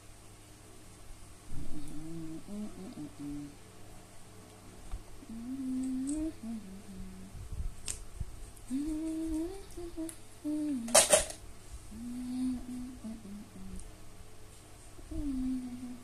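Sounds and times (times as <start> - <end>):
woman humming: 1.5 - 3.6, 5.2 - 7.5, 8.6 - 11.2, 11.9 - 13.9, 15.0 - 16.0.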